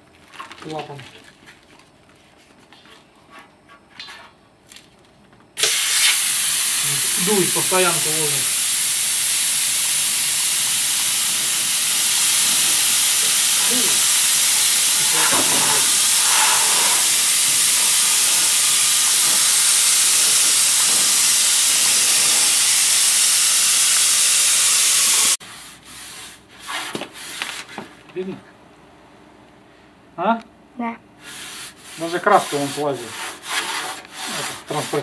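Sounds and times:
air spray gun hissing: 5.6s - 25.4s
rubbing sounds: 25.4s - 28.0s, 31.2s - 35.0s.

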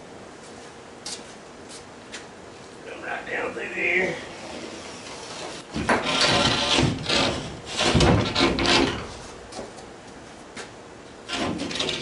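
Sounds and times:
board scraping wooden hull: 4.4s - 9.3s.

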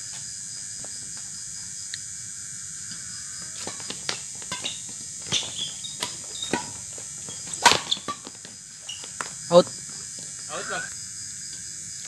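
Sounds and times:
insects chirring: 0.0s - 12.0s
shoes squeaking on court: 3.4s - 10.9s
racket hitting shuttlecock: 3.6s - 8.5s.

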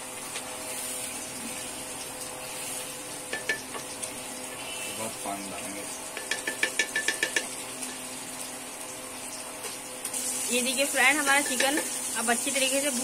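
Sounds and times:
masala sizzling: 0.0s - 13.0s
spatula tapping pan: 3.3s - 3.9s, 6.1s - 8.0s, 11.4s - 12.0s.

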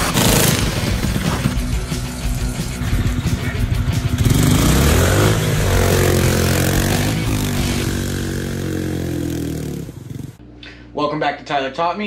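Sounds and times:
atv engine revving: 0.0s - 10.4s.

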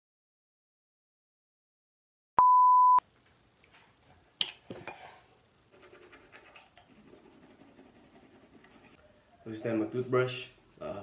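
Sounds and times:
loud steady beep: 2.4s - 3.0s
toothbrush scrubbing teeth: 5.7s - 9.0s.

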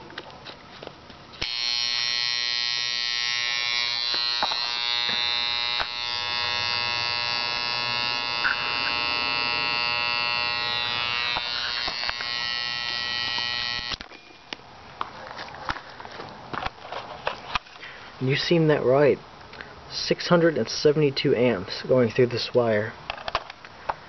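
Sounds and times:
transformer buzzing: 1.4s - 14.2s.

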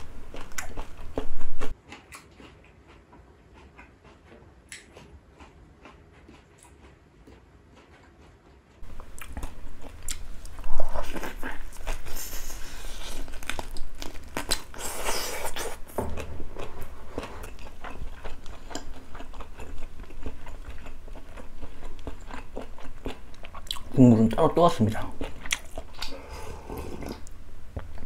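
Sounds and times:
person chewing meat: 0.0s - 28.0s.

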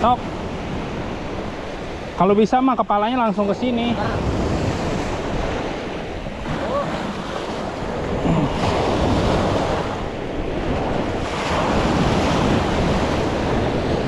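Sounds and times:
surf breaking around a boat: 0.0s - 14.0s
wind rumbling on microphone: 2.9s - 14.0s.

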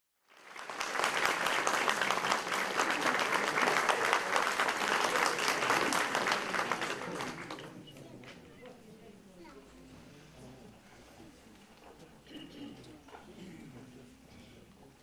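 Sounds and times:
audience applauding: 0.2s - 7.8s.

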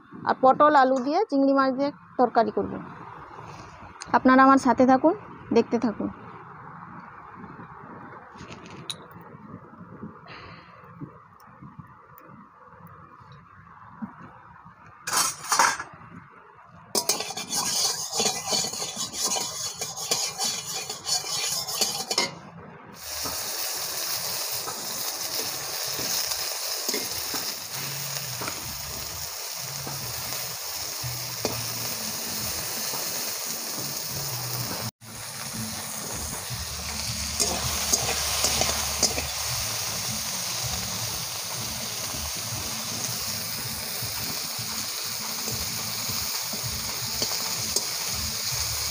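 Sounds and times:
vegetables frying in hot oil: 16.9s - 22.3s, 23.0s - 48.9s
prawns sizzling in oil: 16.9s - 22.4s, 23.0s - 48.9s
spatula moving food in pan: 17.0s - 22.4s, 35.4s - 40.4s.

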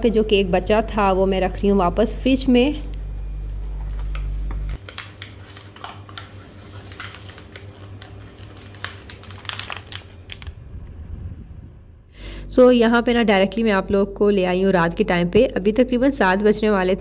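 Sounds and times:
low hum: 9.3s - 15.6s.

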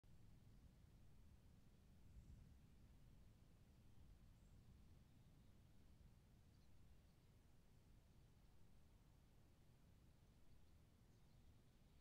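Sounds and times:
faint low rumble and hiss: 0.1s - 12.0s.

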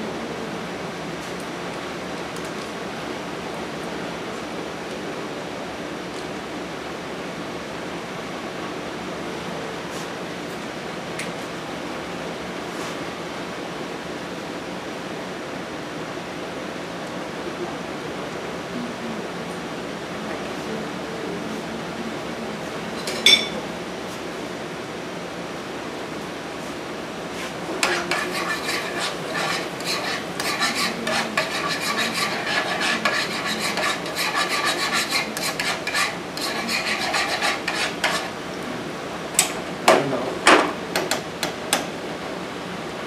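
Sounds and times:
sharp clang: 23.2s - 23.6s
utensil scraping frying pan: 27.4s - 38.4s.

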